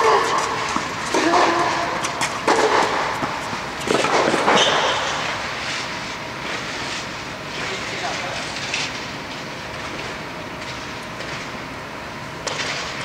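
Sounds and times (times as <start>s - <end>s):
tennis ball hit with rackets: 0.0s - 5.1s.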